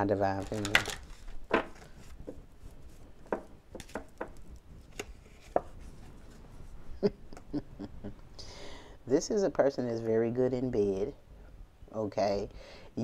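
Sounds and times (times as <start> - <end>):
cards being shuffled: 0.0 - 5.7.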